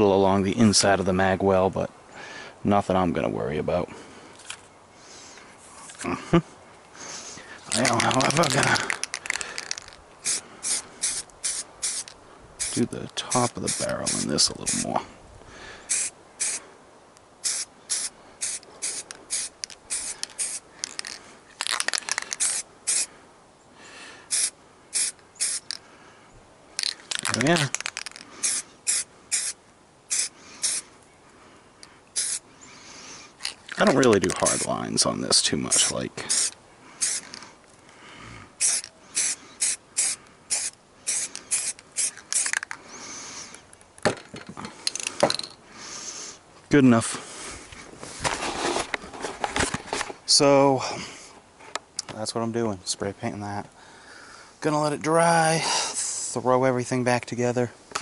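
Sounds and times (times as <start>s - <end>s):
spray paint can hissing in bursts: 7.8s - 12.8s, 13.6s - 14.9s, 15.9s - 16.6s, 17.4s - 23.1s, 24.3s - 25.8s, 26.8s - 30.8s, 32.2s - 32.4s, 35.7s - 37.3s, 38.6s - 42.6s.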